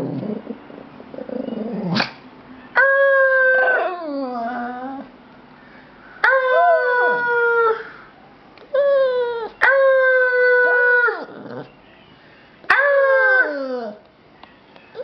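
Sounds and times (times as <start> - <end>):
small dog howling: 2.8 - 5.1, 6.2 - 8.0, 8.7 - 11.7, 12.7 - 14.0.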